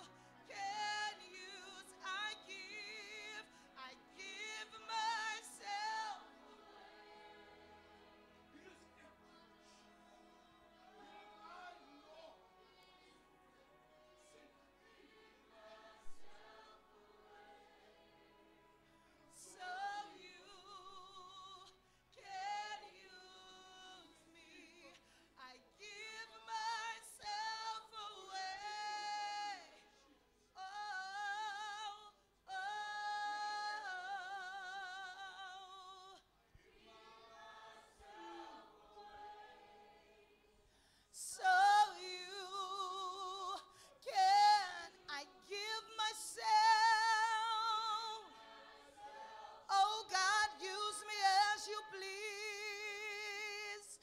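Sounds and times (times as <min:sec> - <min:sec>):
backing singers: 0:00.0 - 0:24.0, 0:30.6 - 0:40.4, 0:41.2 - 0:53.3
woman singing with vibrato: 0:41.2 - 0:48.3, 0:49.7 - 0:54.0.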